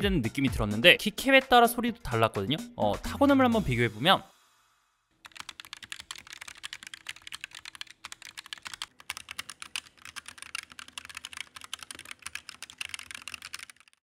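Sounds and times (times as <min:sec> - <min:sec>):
fast keyboard typing clacks: 0:05.2 - 0:14.0.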